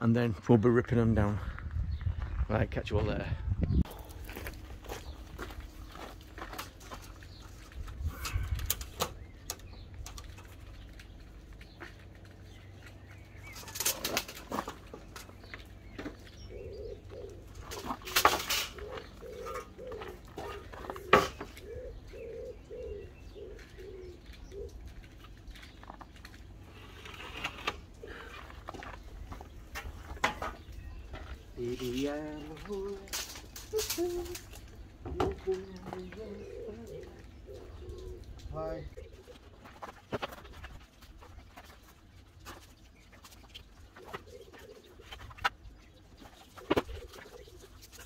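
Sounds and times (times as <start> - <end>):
pigeon cooing: 16.1 - 25.3, 31.6 - 41.8, 43.3 - 45.5, 46.2 - 48.0.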